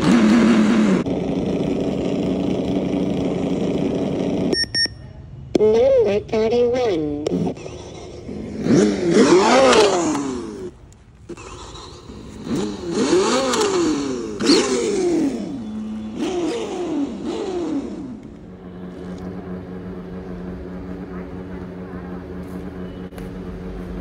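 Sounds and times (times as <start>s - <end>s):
synthetic engine revving from speaker: 0.0s - 1.1s, 7.2s - 10.7s, 11.3s - 18.3s.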